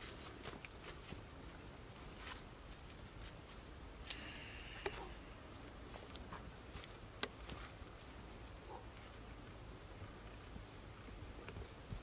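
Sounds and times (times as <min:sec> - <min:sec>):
faint high chirp: 0:04.2 - 0:05.2.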